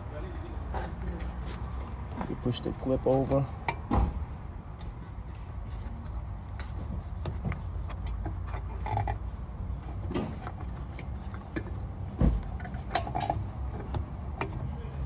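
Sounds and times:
loud thump: 3.8s - 4.3s.

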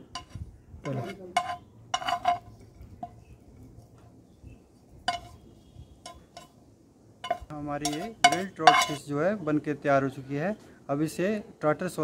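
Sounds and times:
metal spatula scraping frying pan: 0.0s - 3.2s, 5.1s - 6.6s, 7.2s - 9.0s.

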